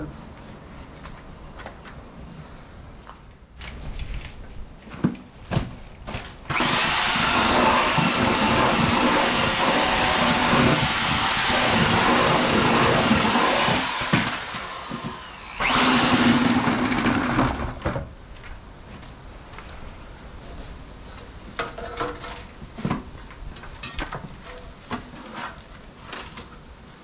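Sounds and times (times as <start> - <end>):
drill paddle mixer churning: 6.5 - 17.8.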